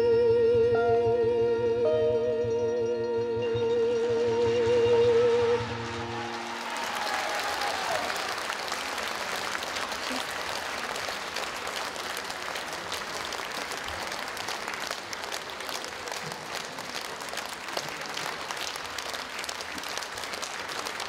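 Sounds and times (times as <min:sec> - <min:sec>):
audience applauding: 0:05.4 - 0:21.0.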